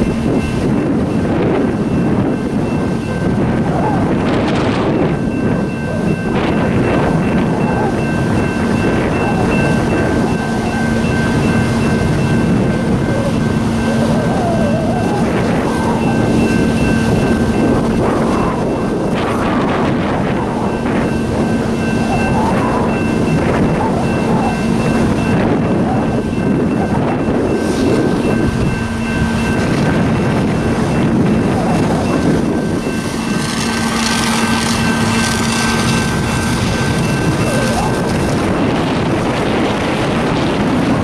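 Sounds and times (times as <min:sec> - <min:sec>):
engine humming: 0:00.0 - 0:41.0.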